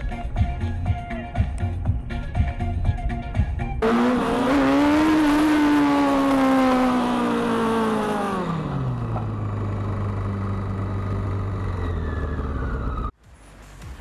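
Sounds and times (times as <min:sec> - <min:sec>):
motorcycle engine revving and idling: 0:03.8 - 0:13.2.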